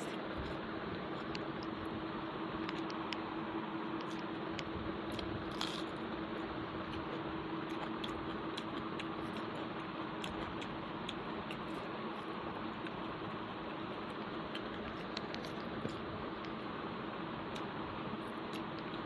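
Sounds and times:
person chewing: 0:04.0 - 0:16.6.

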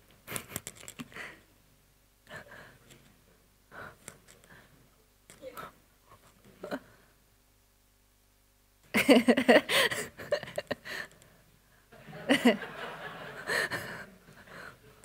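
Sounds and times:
faint voice murmurs and breaths: 0:02.2 - 0:07.2, 0:13.4 - 0:15.0.

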